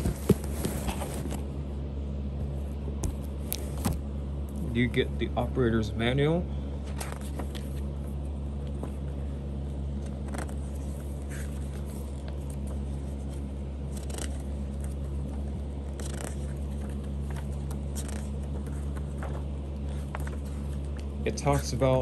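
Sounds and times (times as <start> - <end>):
booklet pages rustling: 0.0 - 1.5, 6.9 - 22.0
low hum: 0.0 - 22.0.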